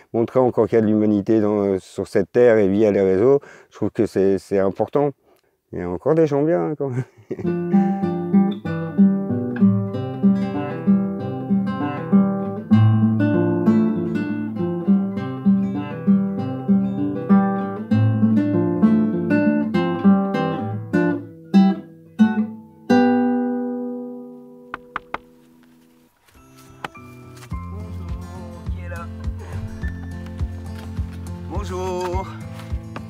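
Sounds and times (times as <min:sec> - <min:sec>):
acoustic guitar music: 0:07.4 - 0:33.0.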